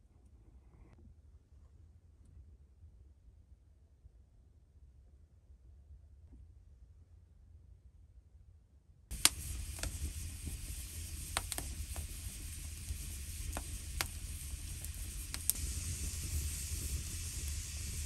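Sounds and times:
food sizzling in a hot pan: 0:09.1 - 0:18.0.

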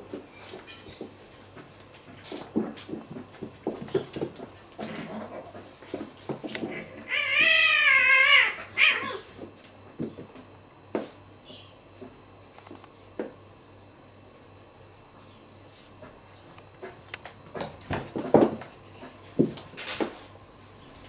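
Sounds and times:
cat yowling: 0:06.7 - 0:09.3.

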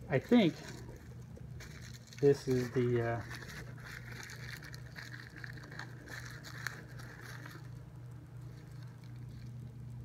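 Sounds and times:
bubble wrap crinkling: 0:00.0 - 0:10.0
steady low hum: 0:00.0 - 0:10.0.

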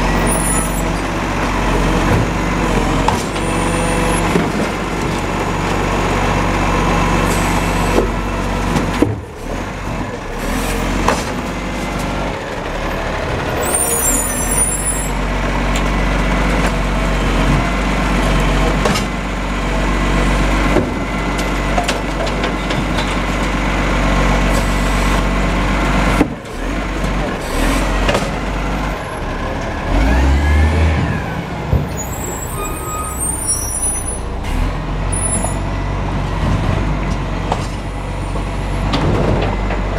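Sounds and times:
diesel truck engine: 0:00.0 - 0:39.9
truck arm lifting bin: 0:00.0 - 0:39.9
short high squeals: 0:13.6 - 0:15.2, 0:31.9 - 0:34.3.

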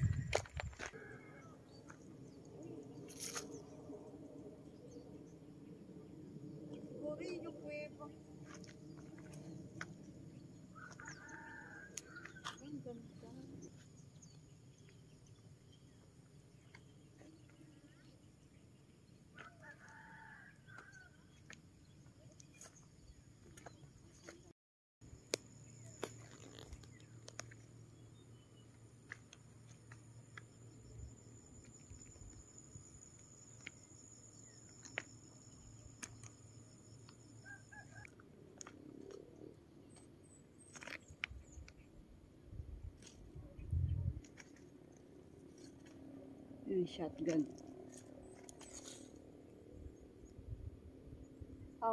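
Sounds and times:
low rumble on microphone: 0:00.0 - 0:00.8, 0:42.5 - 0:44.2
footsteps on loose rocks: 0:00.0 - 0:00.9
faint rooster crowing: 0:00.8 - 0:01.8, 0:10.7 - 0:12.6, 0:19.3 - 0:21.4, 0:37.4 - 0:38.2.

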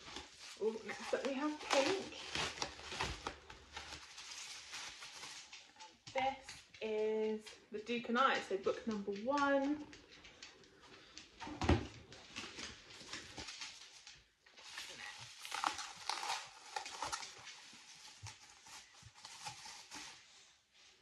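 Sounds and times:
bubble wrap crinkling: 0:00.0 - 0:06.7, 0:12.0 - 0:20.8.

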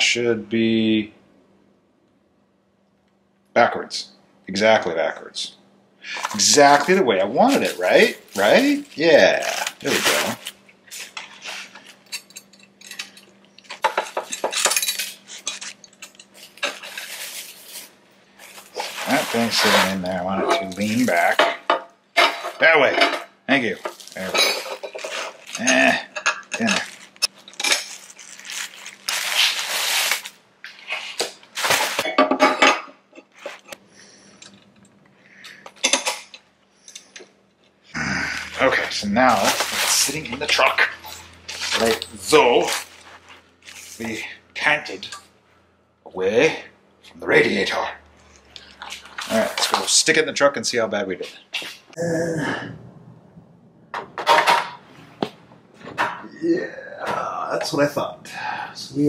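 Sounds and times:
metal clanks and clinks: 0:11.2 - 0:17.0, 0:23.9 - 0:28.0.

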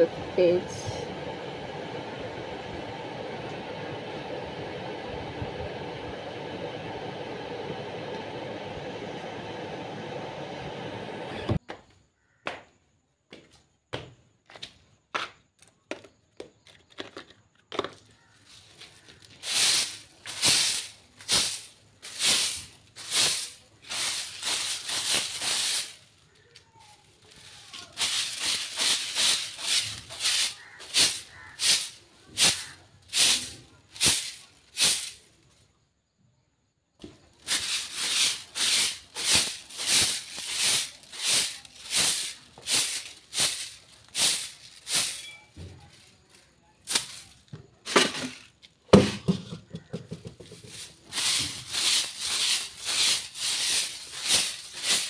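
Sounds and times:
stick broom sweeping brick steps: 0:18.4 - 0:26.1, 0:26.8 - 0:35.2, 0:37.0 - 0:49.5, 0:50.2 - 0:55.0.

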